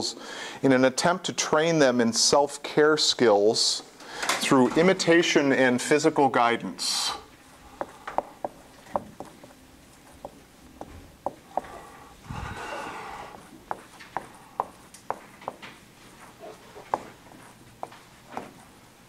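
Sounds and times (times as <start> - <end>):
marker clicking on whiteboard: 13.3 - 15.8.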